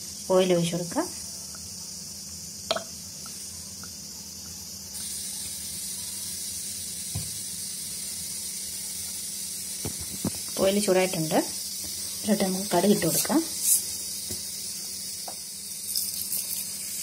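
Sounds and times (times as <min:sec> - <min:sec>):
gas burner hissing: 0:00.0 - 0:17.0.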